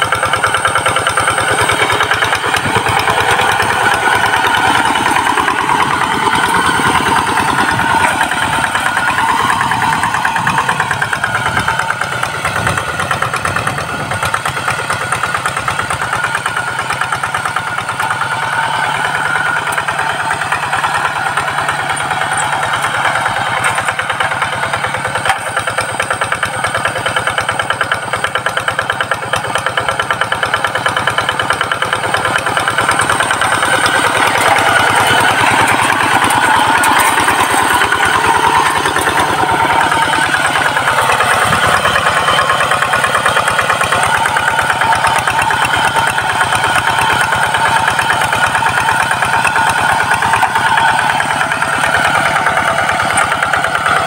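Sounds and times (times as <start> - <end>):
diesel engine chugging: 0.0 - 54.0.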